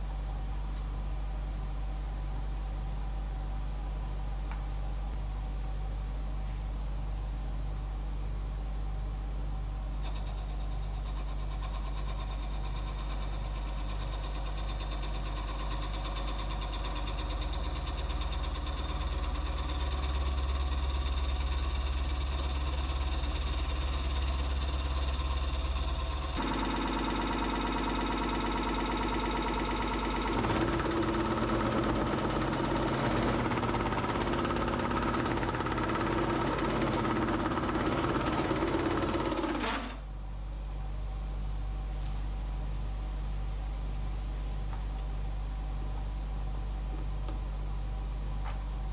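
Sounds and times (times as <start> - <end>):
wood lathe motor hum: 10.0 - 40.0.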